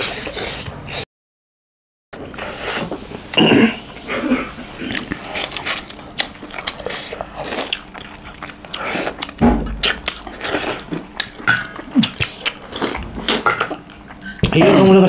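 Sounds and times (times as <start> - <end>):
chewing and lip smacking: 4.8 - 14.6.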